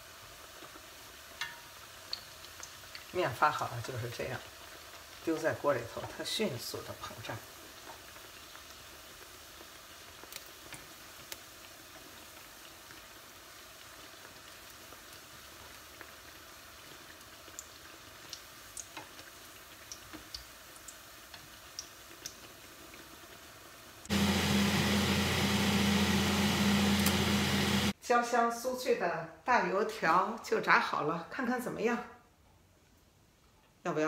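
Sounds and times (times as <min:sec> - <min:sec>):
dough frying in oil: 0:00.0 - 0:28.0
fan hum: 0:24.1 - 0:27.9.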